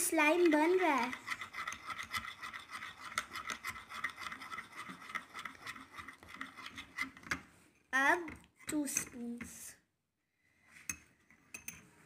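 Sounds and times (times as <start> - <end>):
metal spoon stirring slime: 0.0 - 9.7, 10.8 - 12.0
spoon scraping against glass: 0.6 - 7.4, 10.8 - 11.9.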